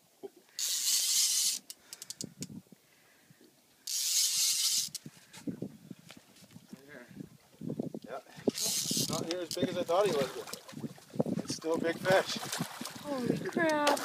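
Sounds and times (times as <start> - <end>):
fishing reel drag giving line: 0.6 - 2.2, 3.8 - 5.1, 8.5 - 9.6
light reel clicks: 3.9 - 5.1.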